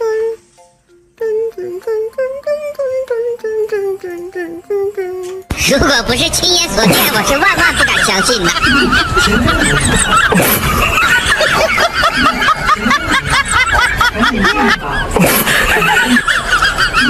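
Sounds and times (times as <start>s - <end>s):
high-pitched laughter: 6.7s - 17.0s.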